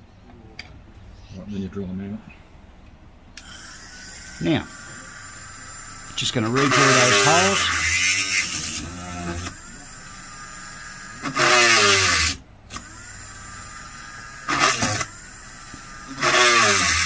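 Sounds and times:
rotary tool drilling: 3.4 - 17.0.

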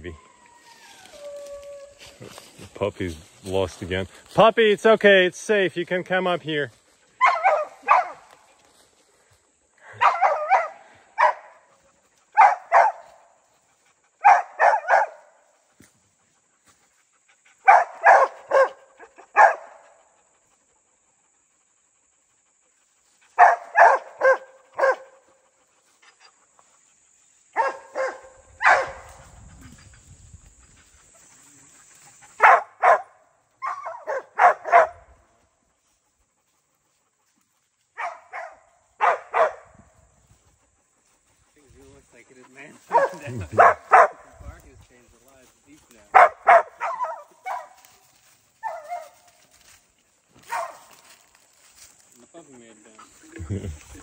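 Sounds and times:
dog barking: 7.2 - 8.4, 9.9 - 13.3, 14.2 - 15.5, 17.6 - 20.0, 23.4 - 25.3, 27.5 - 29.2, 32.4 - 35.2, 38.0 - 39.8, 42.9 - 44.3, 46.1 - 48.0, 48.6 - 49.2, 50.4 - 51.0.

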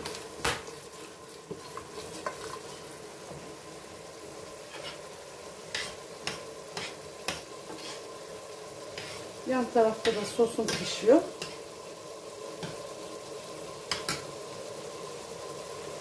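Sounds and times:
sauce simmering with light sizzle: 0.0 - 16.0
wooden spoon stirring pasta: 0.8 - 3.0.

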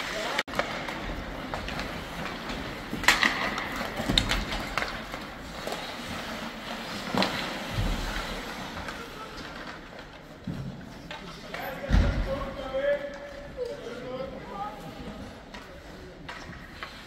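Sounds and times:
sticks and pucks clacking: 0.0 - 11.7, 15.4 - 17.0
skates scraping ice: 0.0 - 17.0.

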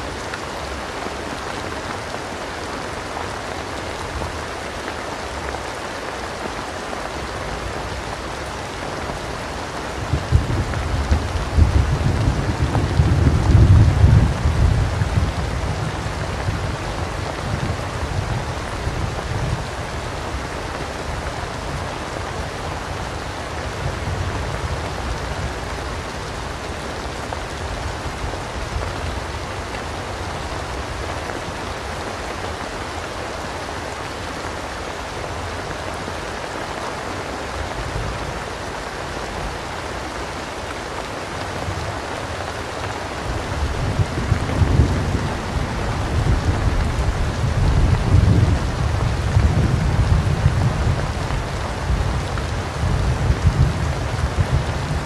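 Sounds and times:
rain pattering: 0.0 - 55.0
rolling thunder: 10.1 - 16.8, 43.6 - 55.0.

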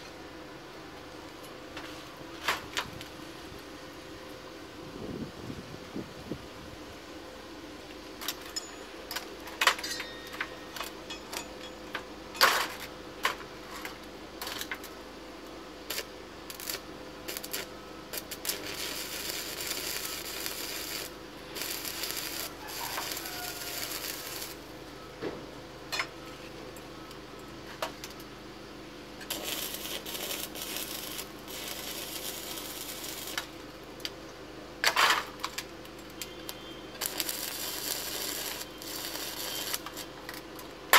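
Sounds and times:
welding arc crackling: 15.8 - 24.9, 29.2 - 34.2, 34.8 - 40.9.

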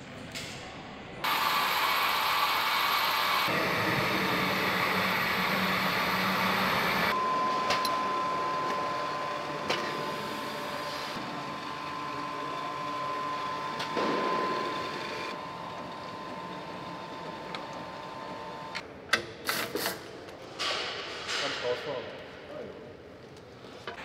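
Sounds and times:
machinery hiss and hum: 1.2 - 15.4
high-pitched machine hum: 1.2 - 18.8.

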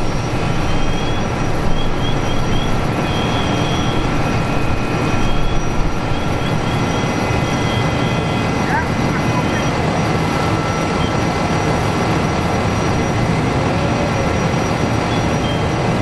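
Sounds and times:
fire truck engine rumbling: 0.0 - 16.0.

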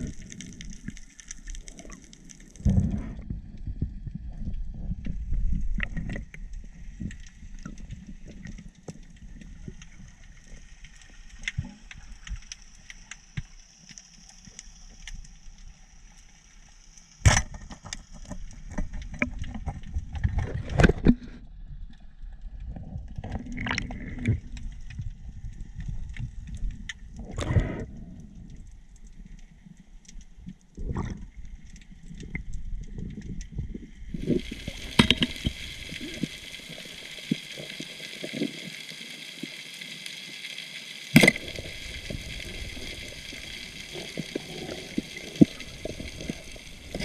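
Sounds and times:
crackling clicks: 0.0 - 47.0
underwater rumble of water: 0.0 - 47.0
faint hiss: 34.1 - 47.0.

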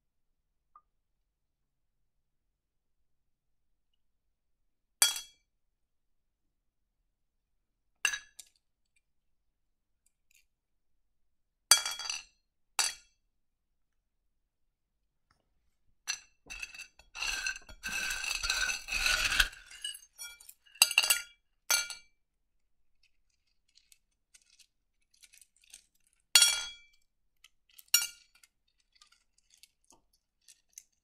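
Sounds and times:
stones clinking in a dish: 11.7 - 13.1, 16.1 - 22.2, 23.0 - 31.0.

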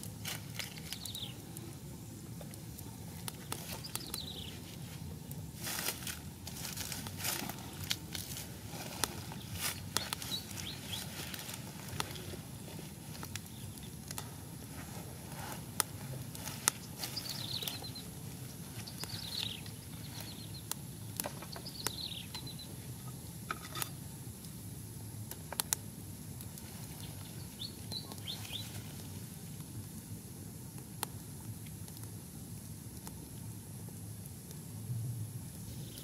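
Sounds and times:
low outdoor hum: 0.0 - 36.0
small birds chirping: 0.6 - 5.4, 8.9 - 14.6, 15.7 - 23.3, 26.8 - 29.1, 35.7 - 36.0.

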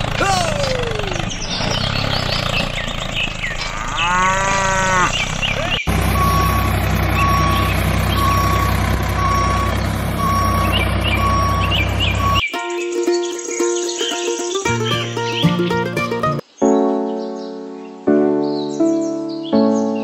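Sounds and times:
vehicle engine running: 0.0 - 12.5
cow mooing: 3.6 - 5.3
reversing alarm beeping: 5.9 - 12.5.

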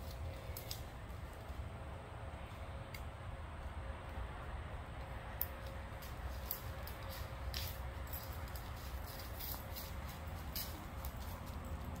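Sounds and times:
paws crackling through dry leaves: 6.0 - 12.0.

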